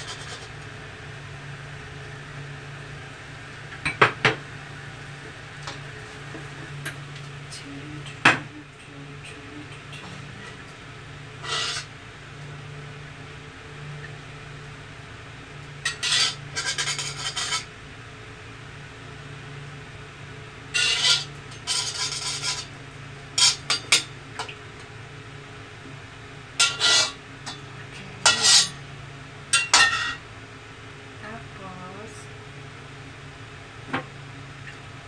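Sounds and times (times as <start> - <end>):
metal spatula scraping wok: 0.0 - 0.5, 11.4 - 11.9, 15.8 - 17.7, 20.7 - 22.8, 23.4 - 24.0, 26.6 - 27.6, 28.2 - 28.8, 29.6 - 30.2.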